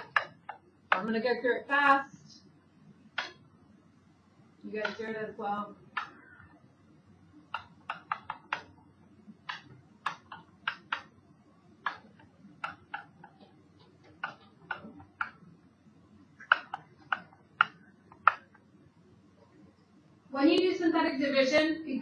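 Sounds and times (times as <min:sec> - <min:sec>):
pen tip tapping on screen: 0:00.0 - 0:01.1, 0:04.8 - 0:05.1, 0:07.5 - 0:08.7, 0:09.4 - 0:11.1, 0:11.8 - 0:15.4, 0:16.4 - 0:18.6.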